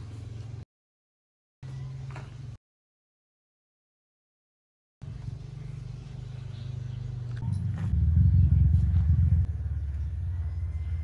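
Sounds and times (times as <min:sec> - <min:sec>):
vehicle engine humming: 0:05.0 - 0:11.0.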